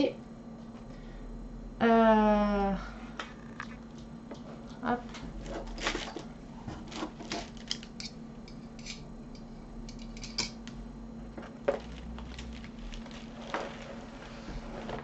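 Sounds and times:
faint steady hum: 0.0s - 15.0s
paper crinkling and clicking: 11.8s - 14.2s.

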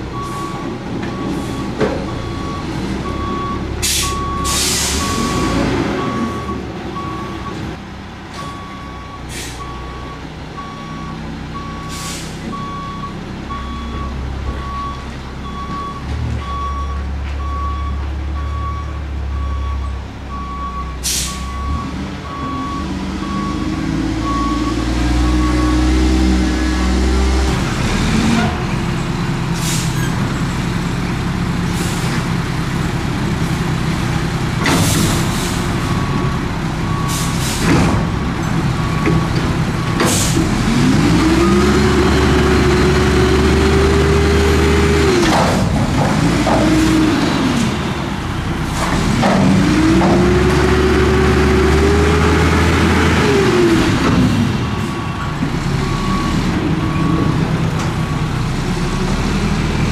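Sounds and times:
diesel engine idling and revving: 0.0s - 59.9s
air brake hisses: 3.8s - 5.0s, 9.3s - 9.7s, 11.9s - 12.4s, 21.0s - 21.5s, 29.6s - 30.1s.

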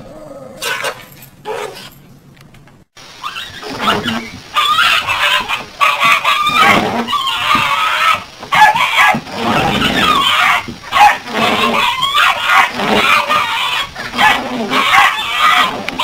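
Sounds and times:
small dog growling and snarling: 0.0s - 1.0s, 6.2s - 16.0s.

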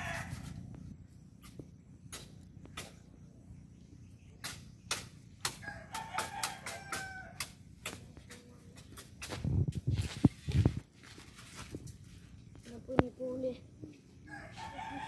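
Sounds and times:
rooster crowing: 0.0s - 0.6s, 5.5s - 7.6s, 14.2s - 15.0s.

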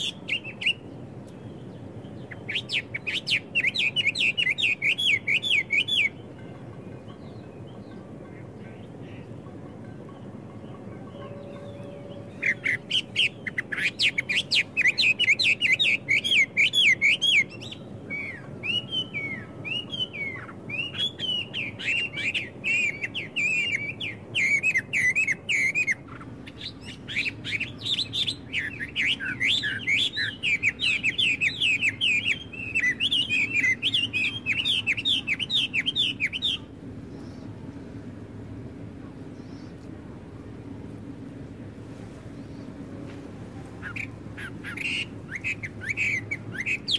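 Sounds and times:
blackbirds chattering: 0.0s - 37.6s, 43.8s - 46.9s.

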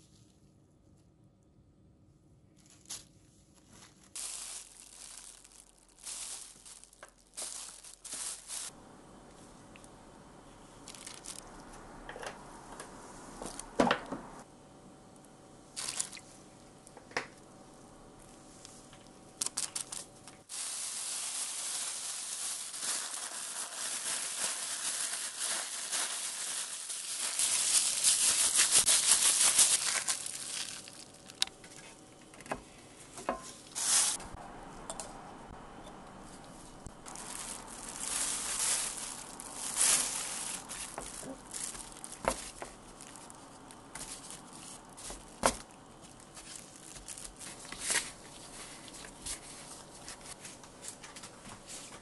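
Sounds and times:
plastic bag crinkling: 2.6s - 8.8s, 10.8s - 11.5s, 15.8s - 16.2s, 19.4s - 31.8s, 33.7s - 34.2s, 37.0s - 50.3s.

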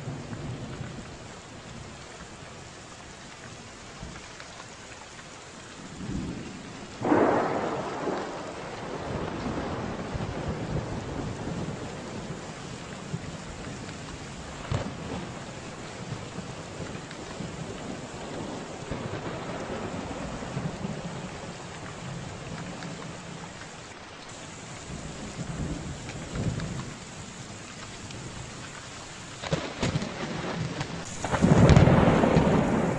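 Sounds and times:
heavy rain: 0.0s - 32.9s
rolling thunder: 5.8s - 23.6s, 24.3s - 28.7s, 29.4s - 32.9s
sharp thunder cracks: 6.0s - 12.4s, 14.6s - 15.4s, 16.0s - 21.3s, 29.4s - 32.9s.

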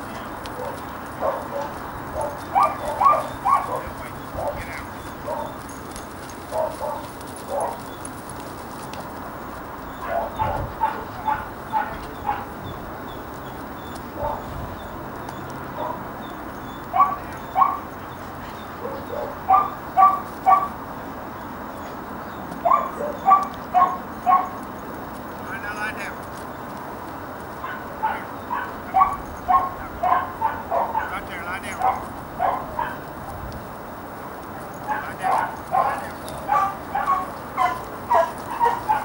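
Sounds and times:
dog barking: 0.6s - 5.6s, 6.5s - 7.9s, 10.0s - 12.6s, 14.1s - 14.8s, 15.8s - 16.0s, 16.9s - 17.9s, 18.8s - 20.8s, 22.6s - 24.6s, 27.6s - 33.1s, 34.8s - 39.0s.

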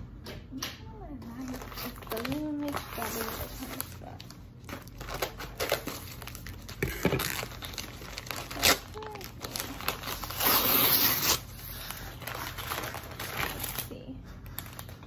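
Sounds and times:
paper package crinkling: 1.3s - 15.0s
paper tearing rip: 6.8s - 13.9s.

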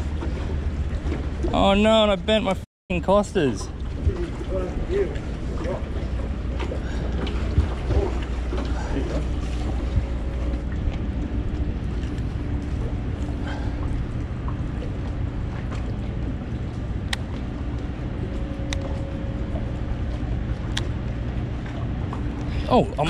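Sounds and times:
boat motor humming: 0.0s - 23.0s.

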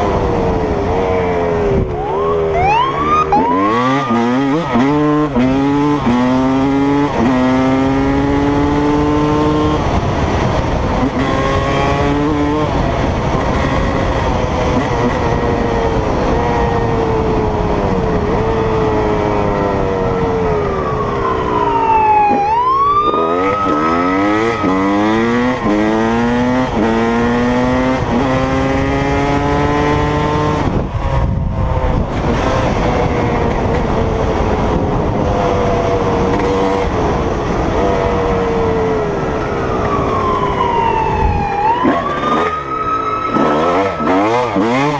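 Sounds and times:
dirt bike engine revving: 0.0s - 17.1s, 23.0s - 30.8s, 41.8s - 44.9s.

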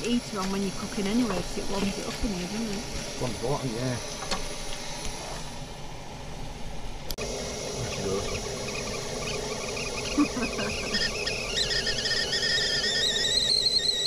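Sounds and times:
whistling kettle: 7.8s - 14.0s.

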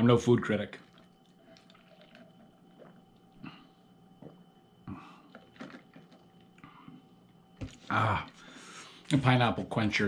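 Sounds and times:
faint room hum: 0.0s - 10.0s
man sipping through a straw: 0.8s - 7.0s.

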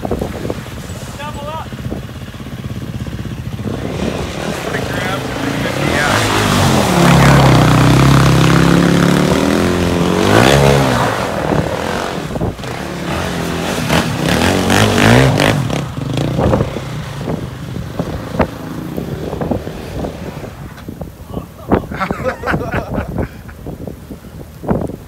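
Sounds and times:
quad engine revving: 1.3s - 20.6s.

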